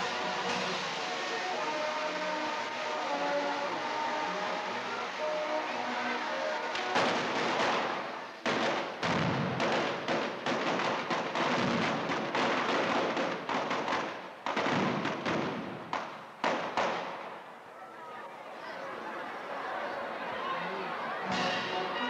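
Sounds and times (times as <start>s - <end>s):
firecracker bangs echoing: 6.6s - 17.4s.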